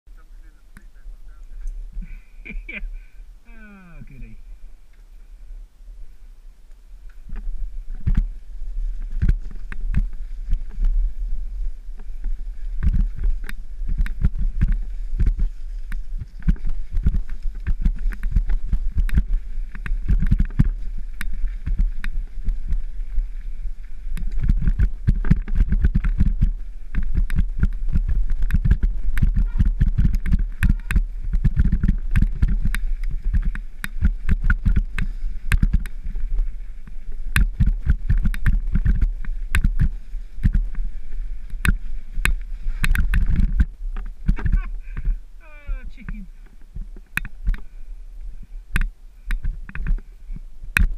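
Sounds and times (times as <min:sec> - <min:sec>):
wind buffeting microphone: 0:04.0 - 0:50.9.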